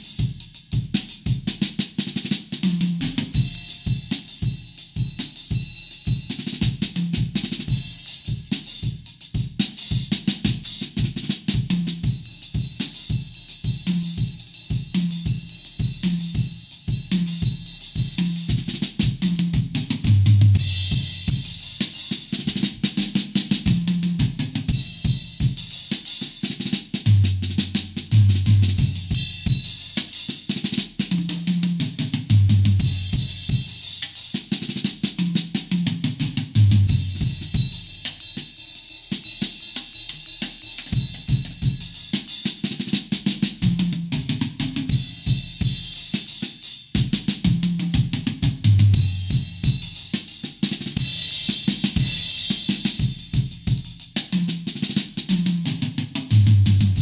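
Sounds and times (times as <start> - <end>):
acoustic drum kit groove: 0.0 - 57.0
low drum hits with cymbal crashes: 3.0 - 26.0, 47.0 - 54.3.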